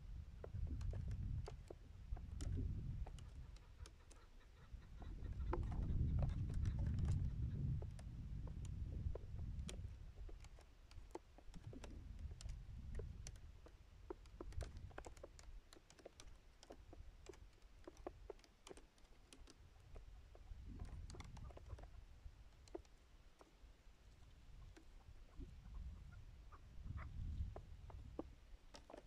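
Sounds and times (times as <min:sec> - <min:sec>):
wind rumbling on microphone: 0:00.0 - 0:10.6, 0:11.5 - 0:15.5, 0:19.6 - 0:22.8, 0:24.2 - 0:28.5
light clicks and ticks: 0:00.3 - 0:25.9, 0:27.0 - 0:29.0.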